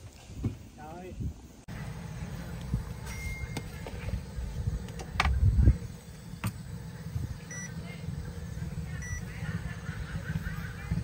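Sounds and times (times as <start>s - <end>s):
steady low rumble: 1.1s - 11.0s
short electronic beeps: 3.1s - 3.7s, 7.5s - 7.7s, 9.0s - 9.2s.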